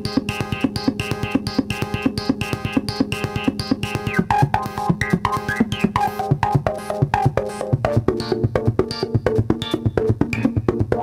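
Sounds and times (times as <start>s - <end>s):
synthesizer sequenced percussive notes: 0.0s - 11.0s.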